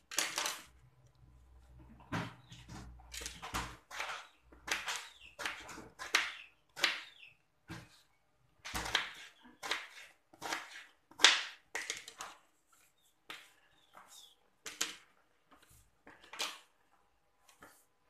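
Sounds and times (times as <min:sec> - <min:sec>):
knife scraping gourd skin: 0:08.8 - 0:11.3.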